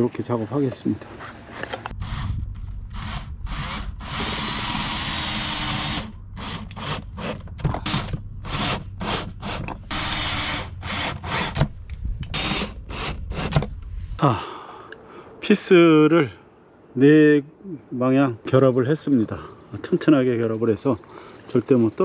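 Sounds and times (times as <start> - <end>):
drill-driver driving screws: 2.9 - 11.6.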